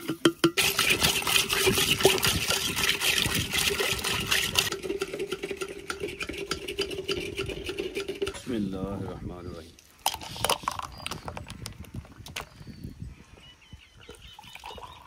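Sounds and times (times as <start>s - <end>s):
liquid pouring and splashing: 0.6s - 8.4s.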